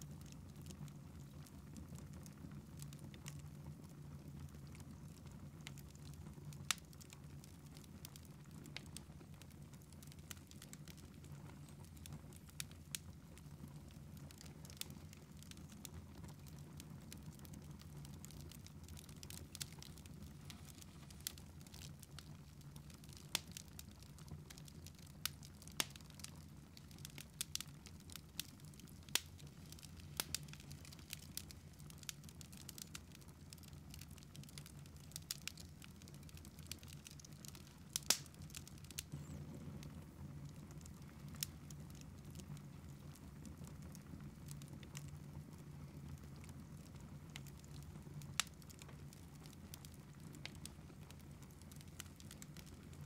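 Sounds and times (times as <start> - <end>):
wood fire crackling: 0.0 - 53.0
faint low hum: 38.6 - 44.4.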